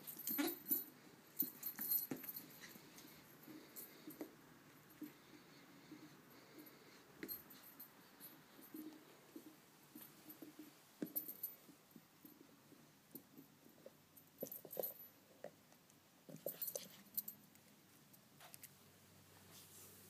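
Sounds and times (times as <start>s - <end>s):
jingly rattles: 0.0s - 4.2s, 14.2s - 15.2s, 16.3s - 17.4s
puppy playing with toys: 0.0s - 18.8s.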